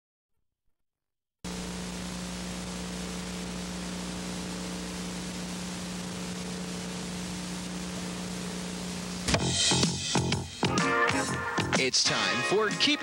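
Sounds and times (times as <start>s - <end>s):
low electrical hum: 1.5s - 9.3s
recording hiss: 1.5s - 10.7s.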